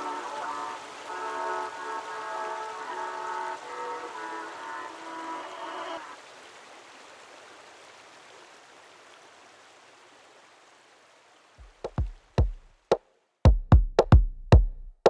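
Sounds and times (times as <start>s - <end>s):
steady rushing hiss: 0.0s - 6.3s
deep electronic drum hits: 13.5s - 14.8s.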